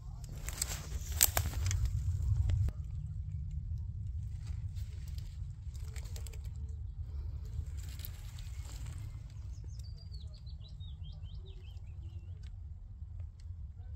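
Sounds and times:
crackles of stepped-on leaves: 0.0 - 10.7
steady low rumble: 0.0 - 13.9.

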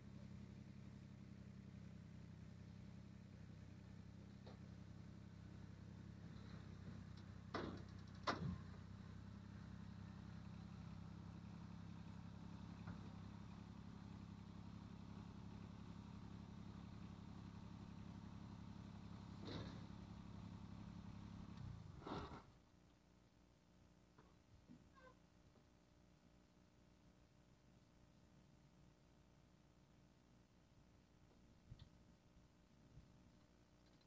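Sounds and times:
diesel tractor engine running: 0.0 - 22.4.

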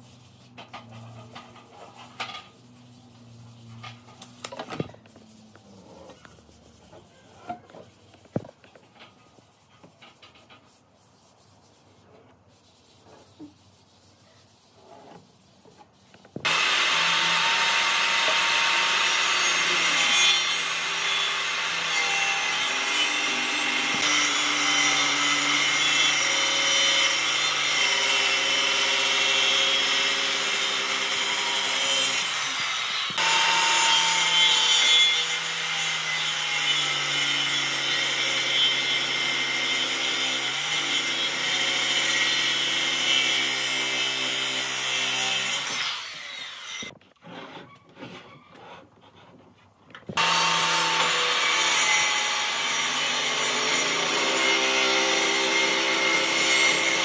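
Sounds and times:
electric power tool working wood: 16.4 - 35.9, 50.2 - 57.0.

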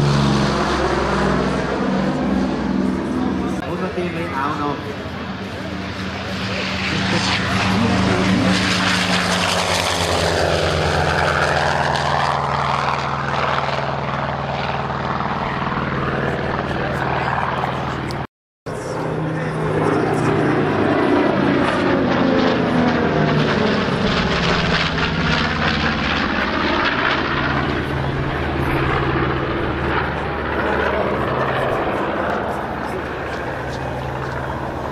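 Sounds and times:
planes droning past: 0.0 - 34.9
propeller plane engine drone: 0.0 - 34.9.

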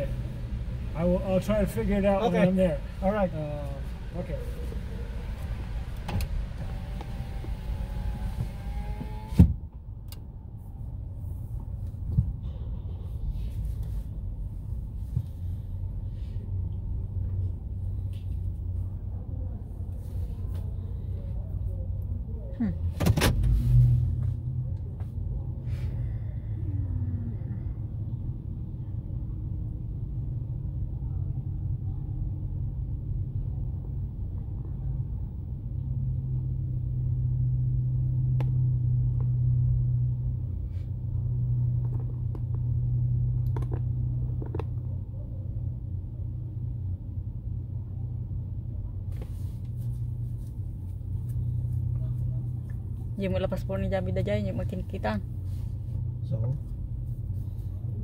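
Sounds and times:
car engine and road noise: 0.0 - 58.0
thump: 8.3 - 9.6.

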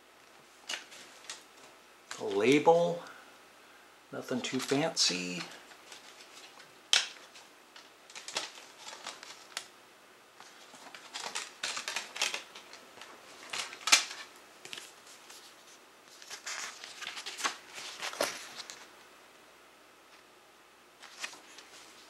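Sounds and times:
paper rustling: 4.4 - 9.7, 10.4 - 18.9, 21.0 - 22.0.

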